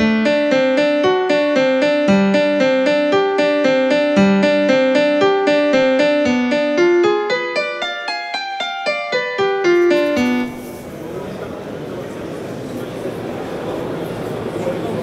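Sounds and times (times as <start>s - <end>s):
piano single notes: 0.0s - 11.3s.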